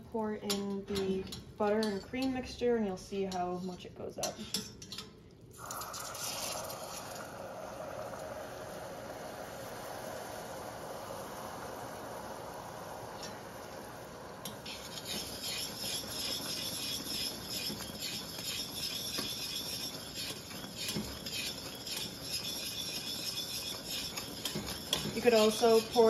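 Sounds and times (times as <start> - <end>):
mixture bubbling and crackling: 5.4 - 26.0
caramel hissing in saucepan: 5.6 - 26.0.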